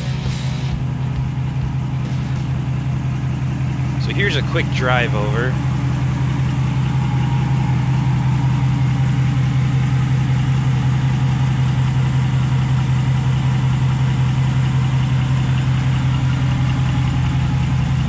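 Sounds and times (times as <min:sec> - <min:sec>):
truck engine idling: 0:00.0 - 0:18.0.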